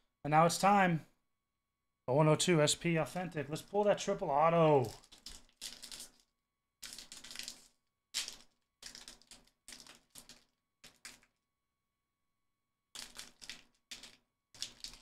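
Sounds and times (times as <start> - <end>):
foil wrapper crinkling: 4.7 - 11.3.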